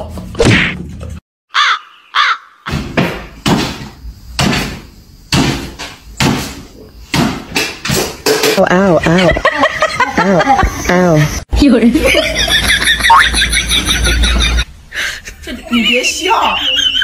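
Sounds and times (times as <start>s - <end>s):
high animal calls: 1.5s - 2.7s.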